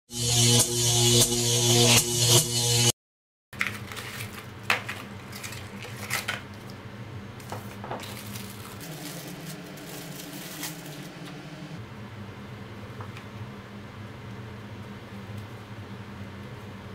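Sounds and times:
clicks and taps of packaging: 3.6 - 6.7.

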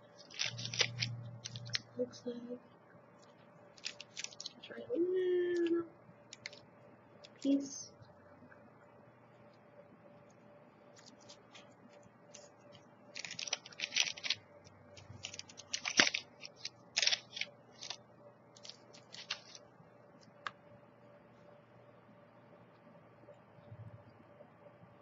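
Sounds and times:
plastic wrapper crinkling: 0.0 - 1.9, 3.2 - 4.7, 6.3 - 6.6, 10.9 - 18.0, 18.6 - 19.6.

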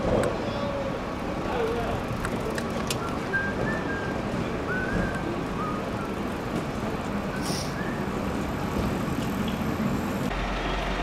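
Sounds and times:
city street traffic: 0.0 - 11.0
van engine running: 6.2 - 11.0.

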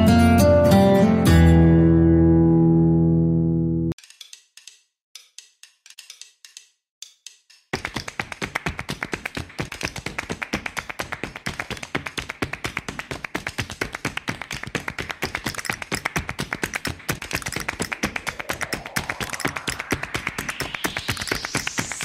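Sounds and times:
rapid percussive tapping: 5.2 - 22.0
rising tone: 17.4 - 22.0.

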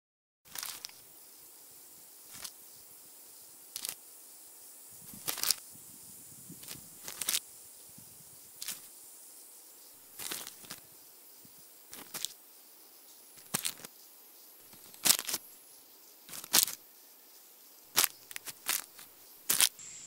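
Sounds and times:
stiff paper cards rustling: 0.5 - 1.0, 5.2 - 5.6, 6.6 - 7.4, 10.2 - 10.8, 11.9 - 12.3, 13.4 - 13.9, 14.7 - 15.4, 16.3 - 16.8, 17.9 - 19.8
steady hiss: 0.5 - 20.0.

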